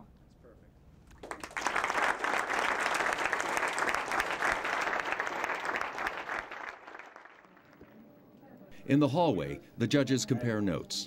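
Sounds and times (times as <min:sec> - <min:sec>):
audience clapping: 0:01.1 - 0:08.0.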